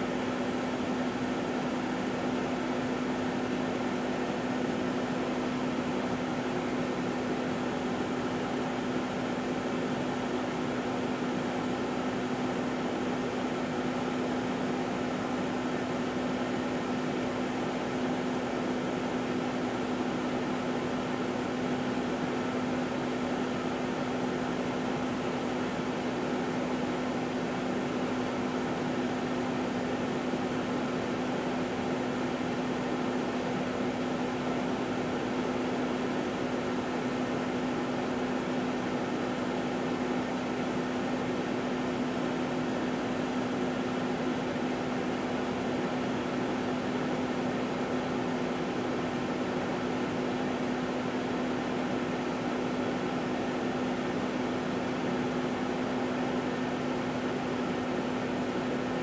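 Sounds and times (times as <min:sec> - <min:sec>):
microwave oven hum: 0:00.0 - 0:59.0.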